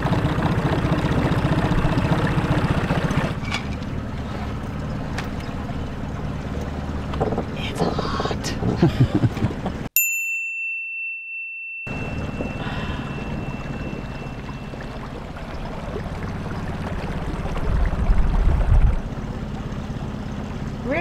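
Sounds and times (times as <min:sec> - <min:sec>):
outboard motor running: 0:00.0 - 0:09.9, 0:11.9 - 0:21.0
bright chime: 0:10.0 - 0:15.2
wind noise on microphone: 0:17.5 - 0:19.1.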